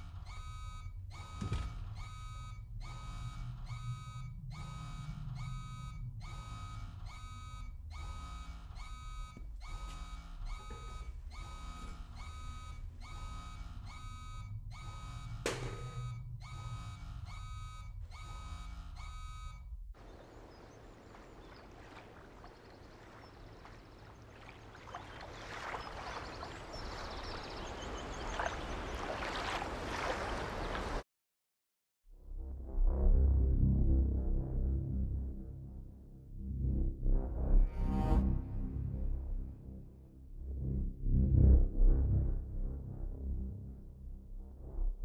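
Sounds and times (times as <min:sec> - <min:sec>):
electronic alarm beeping: 0:00.0 - 0:19.7
low hum: 0:00.0 - 0:29.2, 0:32.2 - 0:45.0.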